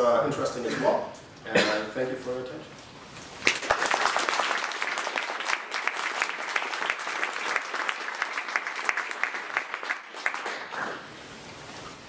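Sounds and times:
audience applauding: 0:03.4 - 0:11.1.

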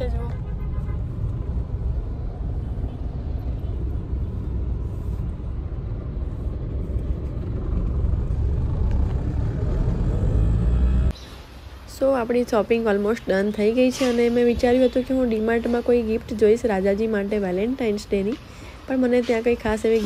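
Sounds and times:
road and engine rumble in car: 0:00.0 - 0:11.2.

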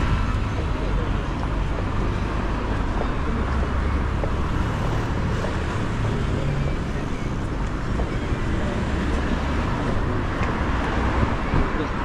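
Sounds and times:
cars running along road: 0:00.0 - 0:12.0.

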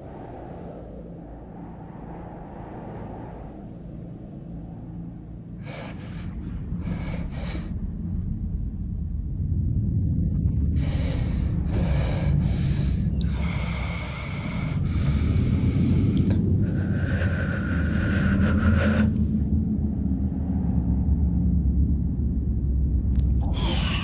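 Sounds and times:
low rumble: 0:00.0 - 0:24.0
woman breathing heavily in pain: 0:05.5 - 0:08.3, 0:10.5 - 0:19.3, 0:23.4 - 0:24.0.

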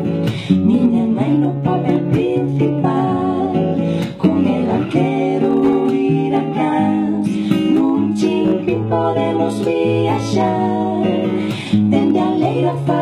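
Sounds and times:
women singing in harmony: 0:00.0 - 0:13.0.

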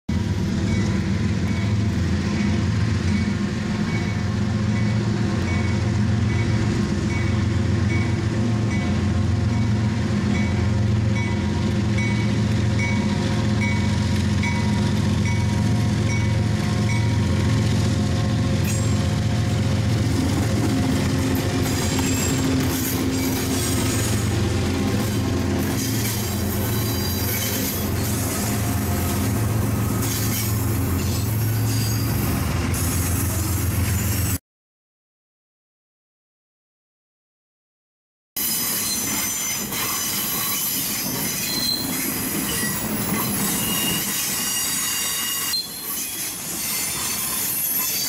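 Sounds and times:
diesel locomotive engine drone: 0:00.1 - 0:34.4
crossing bell ringing: 0:00.6 - 0:17.4.

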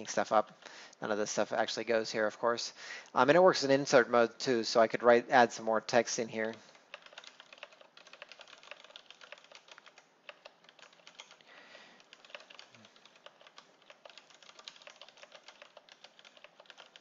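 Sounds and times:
keyboard typing clicks: 0:06.4 - 0:17.0.

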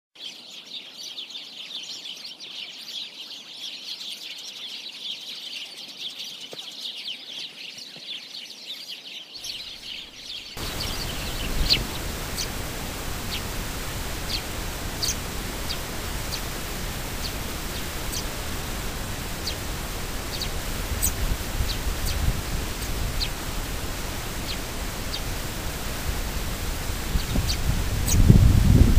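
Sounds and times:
sparrows chirping: 0:00.3 - 0:28.9
steady hiss: 0:10.6 - 0:28.9.

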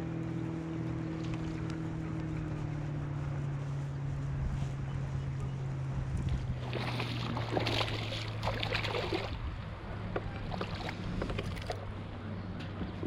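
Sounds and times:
fish splashing at the surface: 0:06.6 - 0:09.4.

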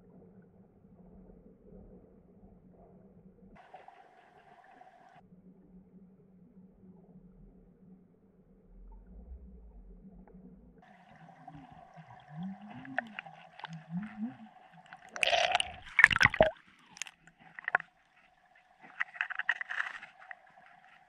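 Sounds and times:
underwater low hum: 0:00.0 - 0:21.0
water gurgling and splashing: 0:10.8 - 0:21.0.

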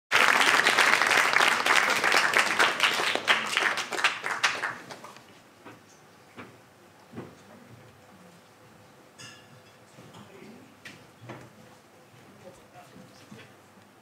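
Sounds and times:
audience applauding: 0:00.1 - 0:05.2.

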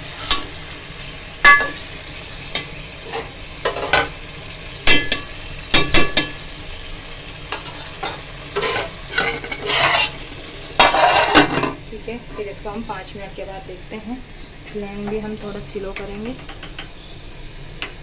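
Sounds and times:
mince sizzling: 0:00.0 - 0:18.0
metal spoon scraping a pot: 0:07.5 - 0:10.2, 0:10.8 - 0:11.7.

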